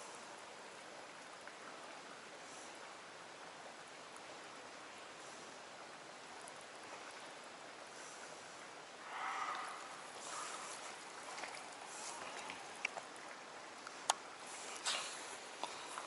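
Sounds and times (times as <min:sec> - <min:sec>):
flowing water: 0:00.0 - 0:16.0
small ticks: 0:09.4 - 0:10.5.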